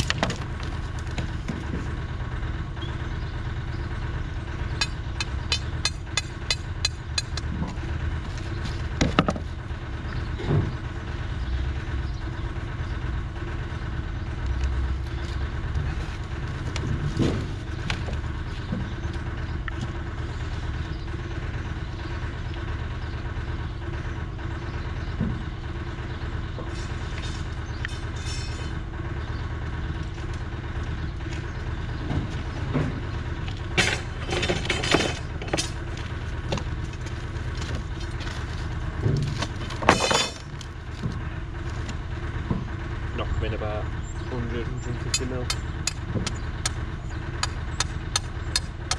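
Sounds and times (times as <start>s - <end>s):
low engine hum: 0.0s - 48.9s
steel bars clattering: 33.6s - 36.0s, 39.0s - 40.7s.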